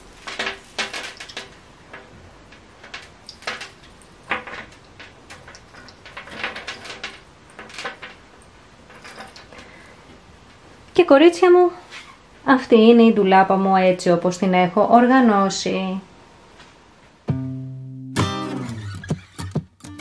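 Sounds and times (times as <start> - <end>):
metal chains clinking: 8.9 - 9.6.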